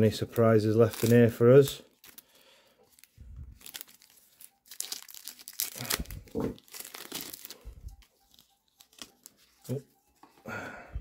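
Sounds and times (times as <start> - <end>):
wrapper tearing and crinkling: 0.2 - 7.6, 8.3 - 9.4.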